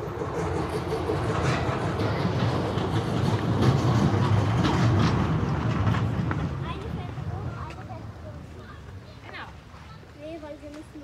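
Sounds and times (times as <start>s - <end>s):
wheels rolling on hard surface: 0.0s - 8.4s.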